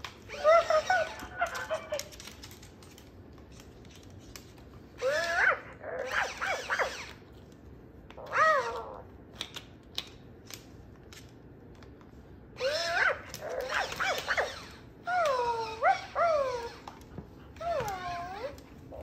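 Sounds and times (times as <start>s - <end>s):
toy puppy whimpering and yipping: 0.3s - 2.0s, 5.0s - 7.2s, 8.2s - 9.1s, 12.6s - 17.0s, 17.6s - 19.0s.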